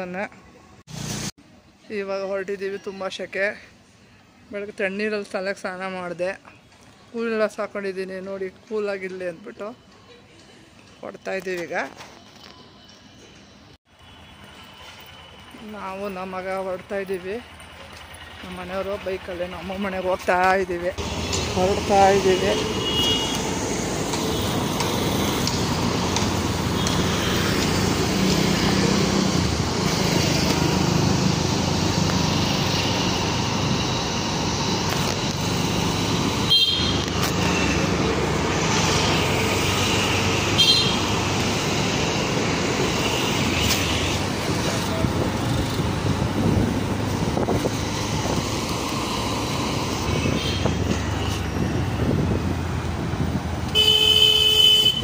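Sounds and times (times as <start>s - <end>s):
road and traffic noise: 0.0s - 55.0s
horn toots: 36.4s - 37.8s, 39.6s - 41.2s, 53.7s - 55.0s.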